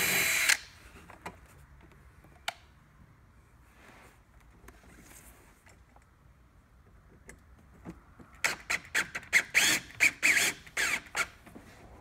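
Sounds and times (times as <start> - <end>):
cordless drill driving screw: 0.0 - 0.7, 8.4 - 11.3.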